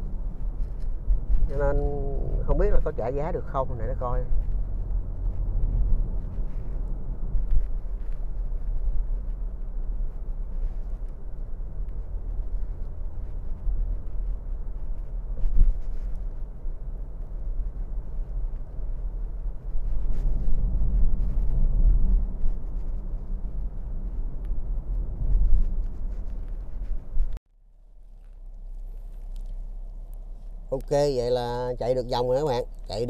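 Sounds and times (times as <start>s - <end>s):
road rumble inside car cabin: 0.0s - 33.0s.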